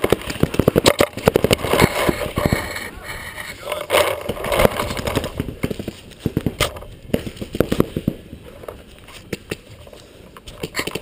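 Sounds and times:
knocks and thumps on camera: 4.0 - 8.2.

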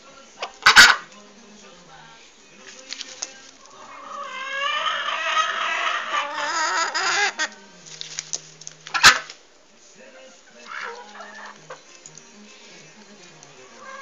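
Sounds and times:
hen giving a wavering call: 0.4 - 1.1, 3.6 - 7.7, 8.8 - 9.3, 10.4 - 11.9, 13.6 - 14.0.

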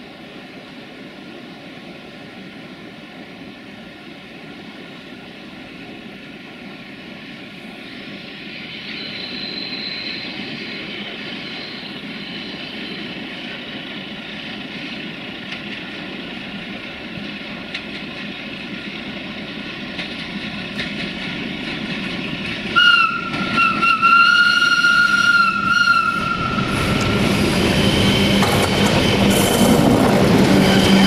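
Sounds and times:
diesel locomotive running: 0.0 - 31.0
high steady whistle: 8.4 - 13.3, 22.7 - 29.4.

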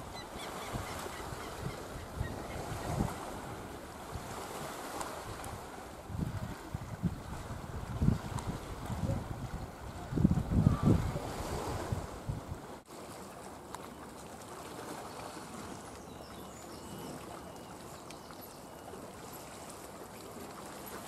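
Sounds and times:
wind buffeting microphone: 0.0 - 12.7
wind hissing over sea: 0.0 - 12.9.

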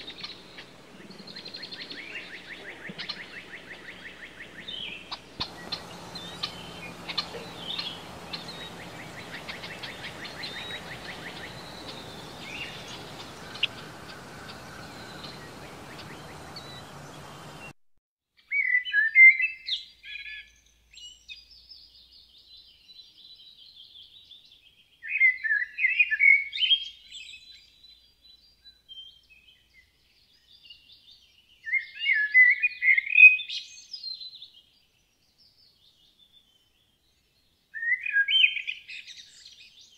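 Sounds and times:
bird chirps and trill: 0.0 - 17.7
blackbird singing: 0.0 - 17.7, 37.8 - 39.9
outdoor hiss: 0.0 - 17.8.

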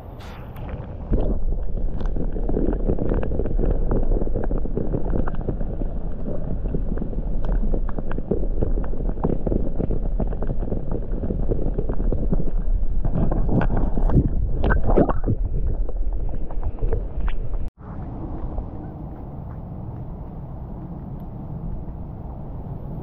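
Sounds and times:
muffled underwater sloshing: 0.0 - 22.7.

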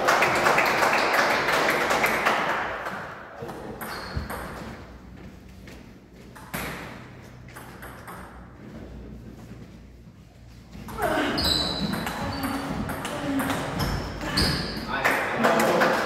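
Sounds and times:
table tennis ball bouncing: 2.8 - 4.8, 6.4 - 8.6, 11.8 - 15.8
voice echoing in a hall: 10.8 - 16.0.

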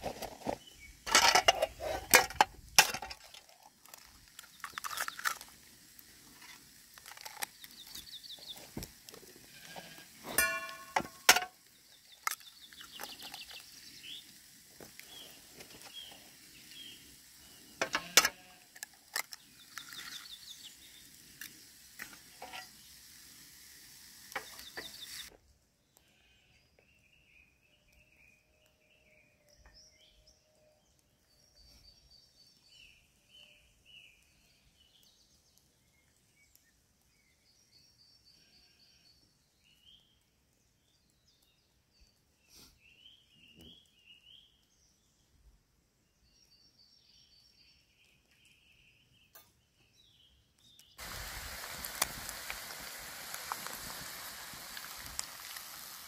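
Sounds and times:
metal camp cookware clinking: 0.0 - 5.4, 10.2 - 11.6, 17.8 - 20.3, 22.0 - 22.8
pan sizzling: 0.0 - 25.3, 51.0 - 56.0
wood stove crackling: 1.1 - 25.3, 51.0 - 56.0
birds chirping: 3.8 - 23.0, 24.3 - 25.3.

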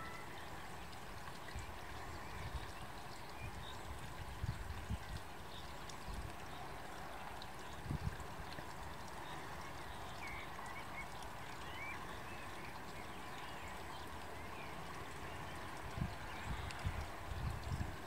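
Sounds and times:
faint distant bird chirps: 0.0 - 0.8.

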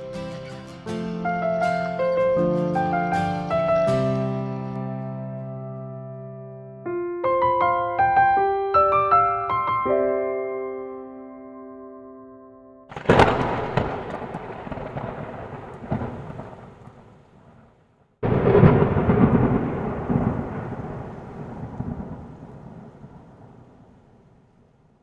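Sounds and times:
thunder cracking and rumbling: 12.9 - 24.5.

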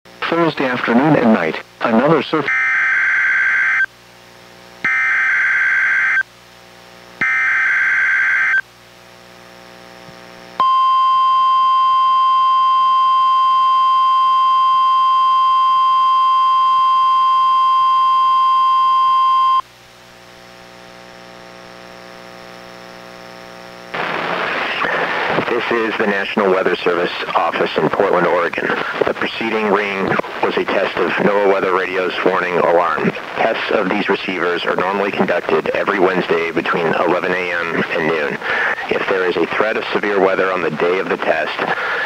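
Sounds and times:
faint electrical hum: 0.1 - 42.0
steady alarm tone: 2.4 - 3.9, 4.8 - 6.2, 7.2 - 8.6, 10.6 - 19.6
screeching digital data bursts: 4.9 - 6.2, 7.2 - 8.6.

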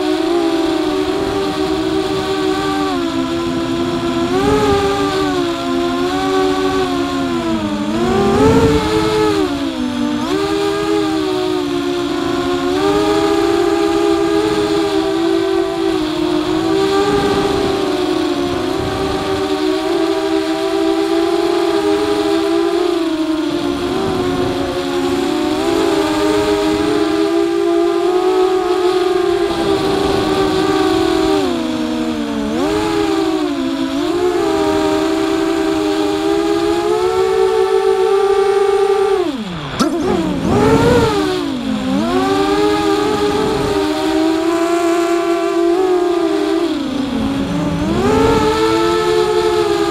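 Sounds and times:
drone motors whining: 0.0 - 49.9.

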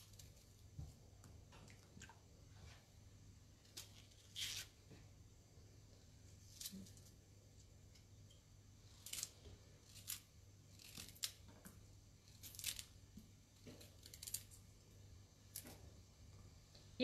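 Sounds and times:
artichoke leaves crackling: 8.8 - 11.5, 12.2 - 13.0.

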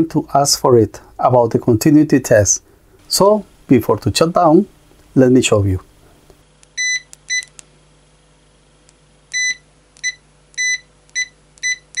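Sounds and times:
continuity buzzer beeping: 9.3 - 12.0.

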